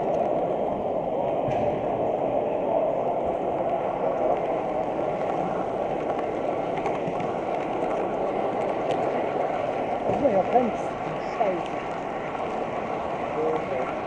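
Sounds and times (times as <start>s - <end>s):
model train wheels rolling on rails: 0.0s - 14.0s.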